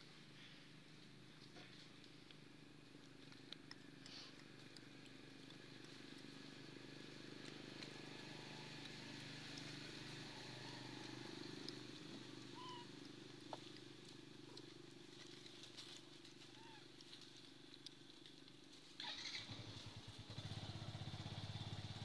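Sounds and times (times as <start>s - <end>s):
faint clicks: 1.4s - 6.2s.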